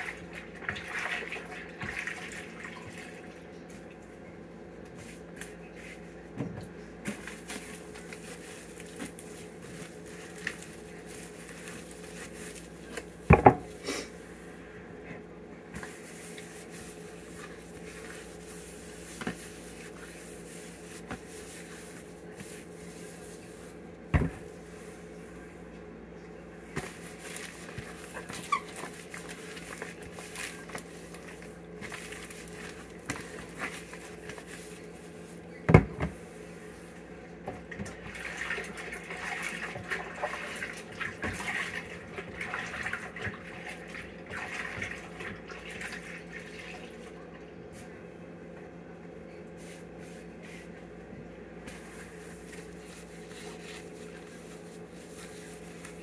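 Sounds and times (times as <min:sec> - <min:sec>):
steady hum: 0:02.5 - 0:39.0
rubbing and rustling: 0:07.1 - 0:13.2, 0:15.8 - 0:23.8, 0:51.7 - 0:56.0.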